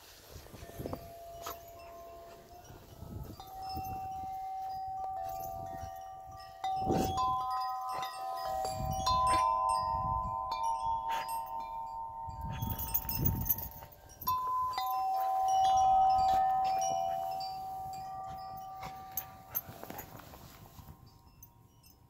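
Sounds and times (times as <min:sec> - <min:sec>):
chime-like ringing tones: 0:00.2 - 0:22.0.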